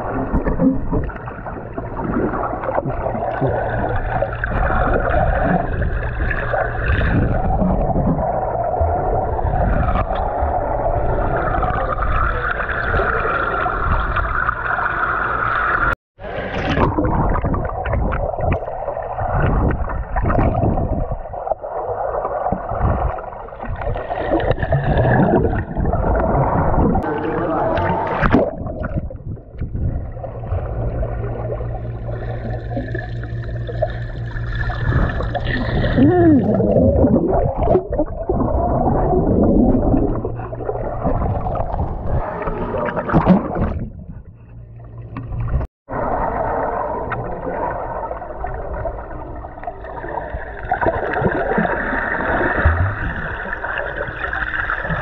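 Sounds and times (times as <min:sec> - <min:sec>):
muffled underwater bubbling: 0:00.0 - 0:55.0
steady low hum: 0:26.3 - 0:51.9.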